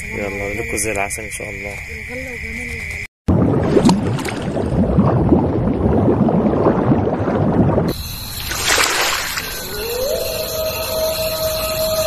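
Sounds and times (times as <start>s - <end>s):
underwater bubbling: 3.3s - 9.7s.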